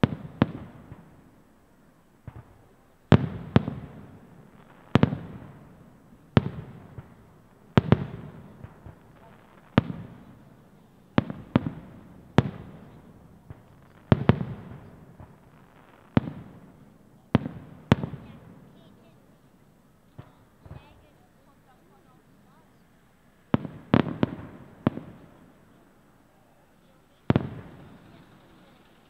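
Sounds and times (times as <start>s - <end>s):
firework shells bursting: 2.2s - 18.8s, 26.8s - 29.0s.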